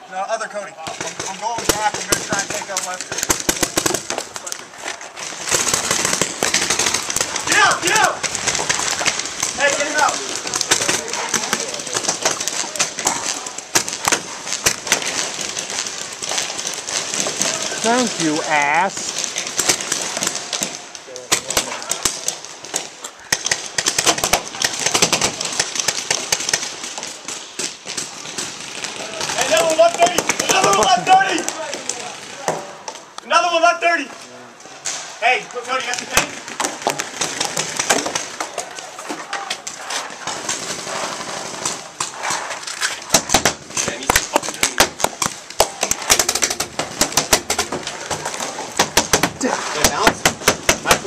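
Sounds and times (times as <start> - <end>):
paintball markers firing: 0.8 - 4.6, 5.2 - 18.4, 19.0 - 33.0, 35.8 - 38.8, 39.6 - 51.0.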